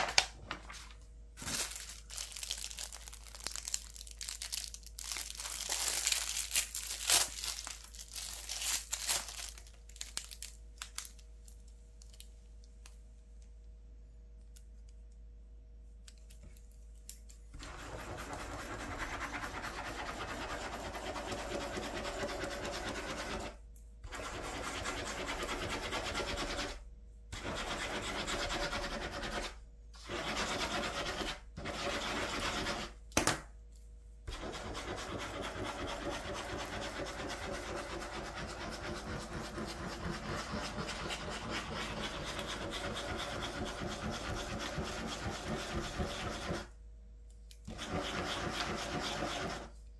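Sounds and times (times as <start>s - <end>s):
pen scribbling on paper: 17.6s - 23.5s, 24.1s - 26.8s, 27.4s - 32.9s, 34.3s - 46.7s, 47.7s - 49.7s.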